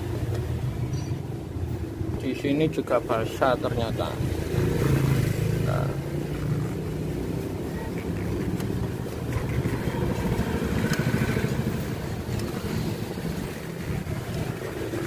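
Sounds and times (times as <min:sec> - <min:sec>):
low engine rumble: 0:05.0 - 0:15.0.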